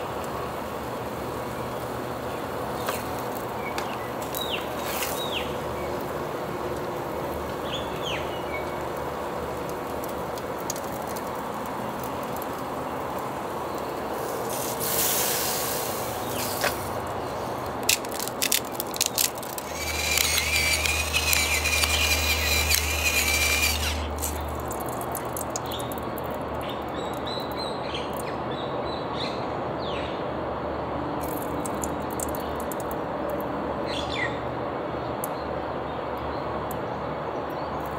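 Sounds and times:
hiss with thin whine and hum: 0:00.0 - 0:17.9
steady background hiss: 0:00.0 - 0:24.5
meat clicking on a grill: 0:02.8 - 0:05.4, 0:06.7 - 0:27.6, 0:31.2 - 0:33.5.

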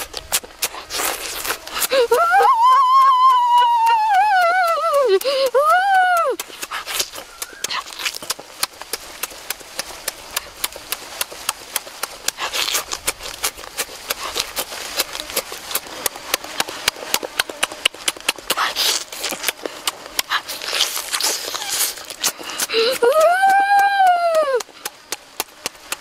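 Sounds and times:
short rustling slurps: 0:00.0 - 0:02.0, 0:06.4 - 0:23.0
open-mouthed chewing: 0:00.0 - 0:26.0.

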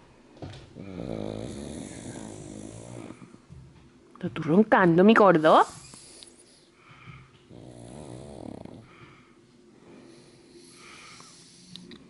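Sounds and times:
dog snoring: 0:00.7 - 0:03.5, 0:05.6 - 0:09.2, 0:10.0 - 0:12.0
dog breathing softly: 0:05.7 - 0:12.0.

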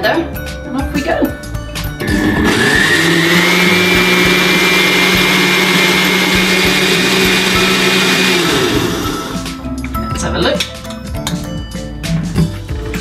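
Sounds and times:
blender motor running: 0:02.0 - 0:09.5.

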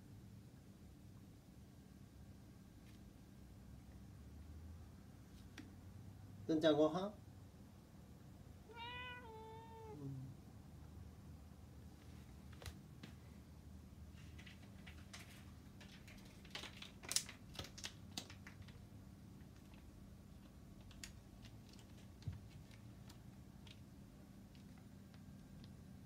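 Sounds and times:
faint clicks and taps: 0:05.3 - 0:05.8, 0:12.0 - 0:13.2, 0:19.4 - 0:25.8.

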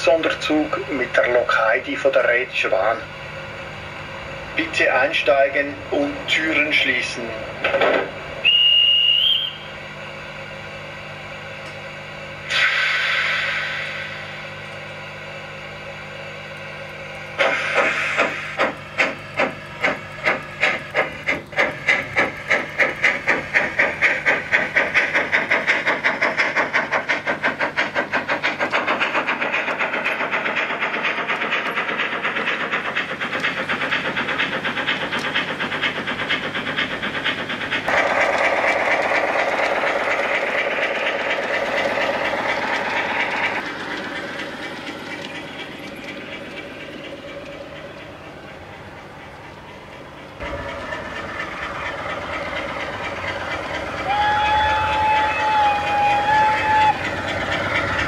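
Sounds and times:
model steam locomotive chuffing: 0:00.0 - 0:58.0
steam hiss: 0:12.4 - 0:14.7, 0:17.4 - 0:44.7.

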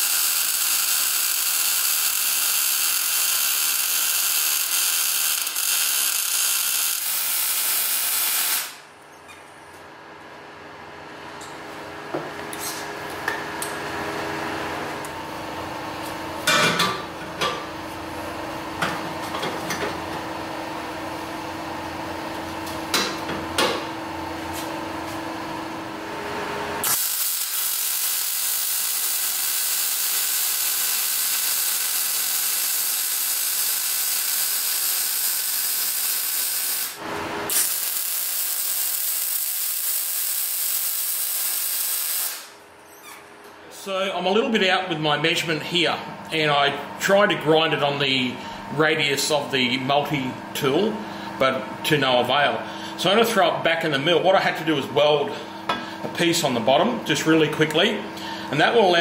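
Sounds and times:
welder hissing: 0:00.0 - 0:08.8, 0:26.8 - 0:42.6
steady hum: 0:42.4 - 0:59.0.

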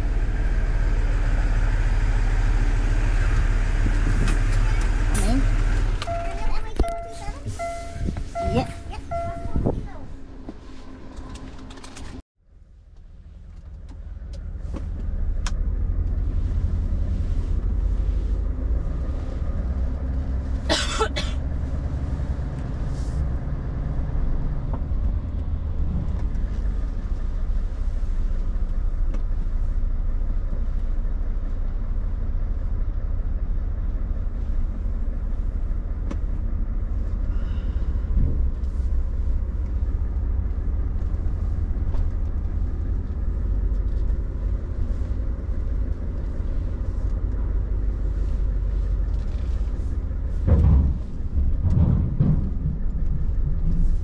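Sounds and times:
truck diesel engine running: 0:00.0 - 0:12.2, 0:13.1 - 0:54.0
wheels knocking over ramp: 0:50.4 - 0:54.0.

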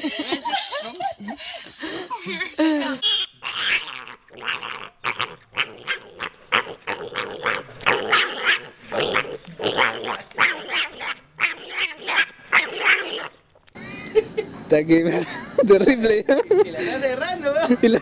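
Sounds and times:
pig squealing: 0:03.0 - 0:13.4.

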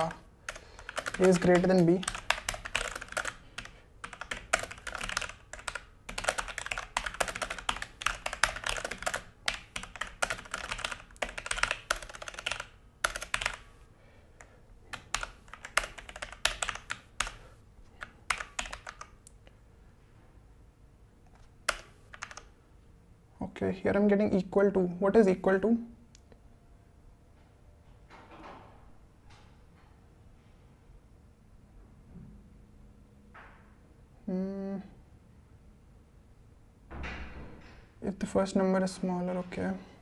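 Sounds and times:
mechanical keyboard typing: 0:00.0 - 0:13.7, 0:14.9 - 0:17.4, 0:18.0 - 0:19.2, 0:21.6 - 0:22.5.

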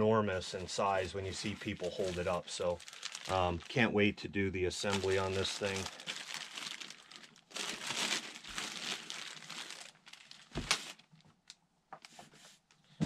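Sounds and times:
plastic bag crinkling: 0:00.9 - 0:04.0, 0:04.8 - 0:11.4.

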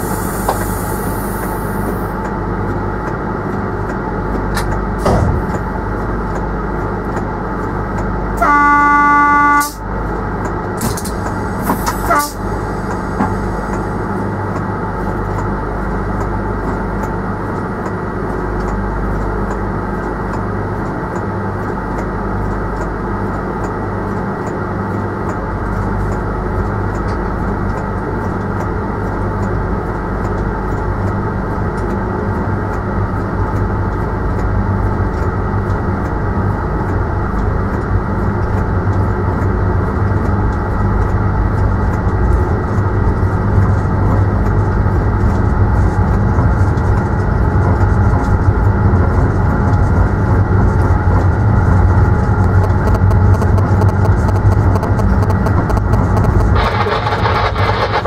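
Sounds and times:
train running hum: 0:00.0 - 0:58.0
train horn: 0:08.4 - 0:09.8, 0:12.0 - 0:12.5
short sharp sounds: 0:56.1 - 0:58.0.

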